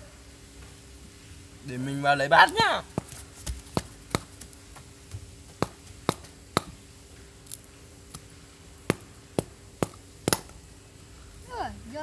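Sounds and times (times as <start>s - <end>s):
knife chopping bamboo tube: 2.9s - 4.5s, 5.6s - 6.8s, 8.2s - 10.6s.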